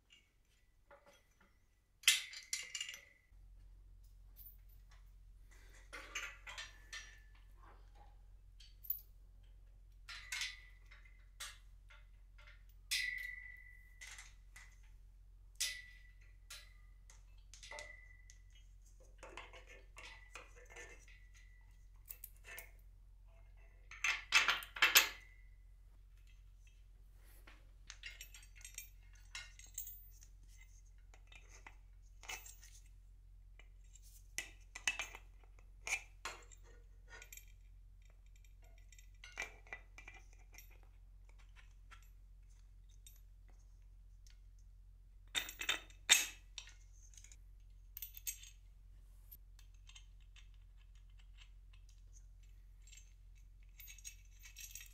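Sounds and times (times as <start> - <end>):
metal pulley hardware clinking: 10.1 - 14.8.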